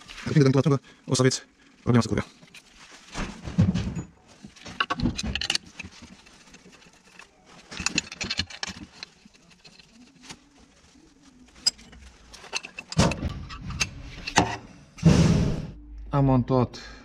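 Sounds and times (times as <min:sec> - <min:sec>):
handling scuffle: 0:02.3 - 0:13.0
metal tools and bolts clinking: 0:03.9 - 0:10.3, 0:11.5 - 0:14.5.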